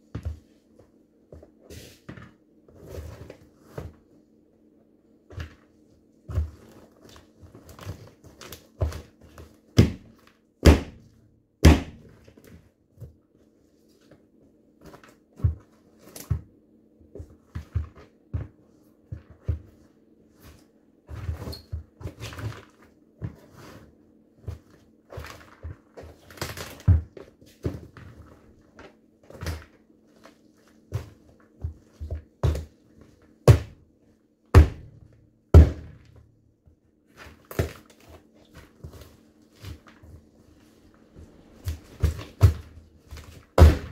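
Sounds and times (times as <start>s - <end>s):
sneakers stomping pumpkin on wood: 9.8s - 12.1s, 33.4s - 33.8s, 34.5s - 36.2s, 41.7s - 42.8s, 43.5s - 43.9s.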